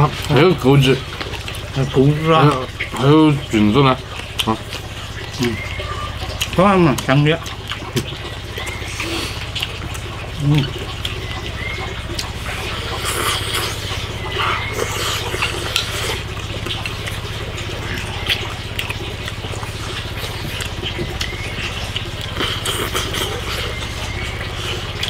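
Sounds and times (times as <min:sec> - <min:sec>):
people chewing and slurping: 0:00.0 - 0:25.0
steady low hum: 0:00.0 - 0:25.0.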